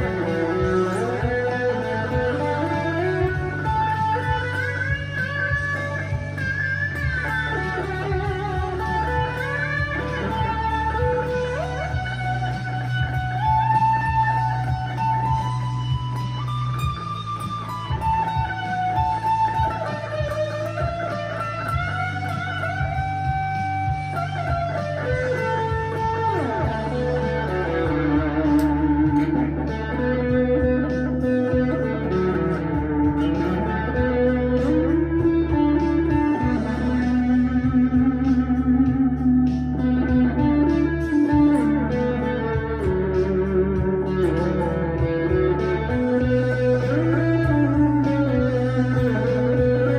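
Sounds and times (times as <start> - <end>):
electric guitar lead line: 0.0 - 49.9.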